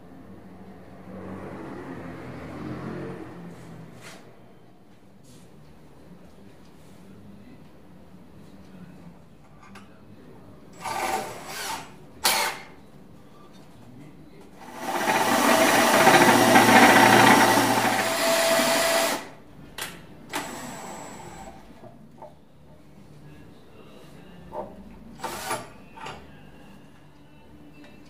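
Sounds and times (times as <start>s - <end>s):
cordless drill drilling into wood: 14.7s - 19.3s, 25.2s - 25.6s.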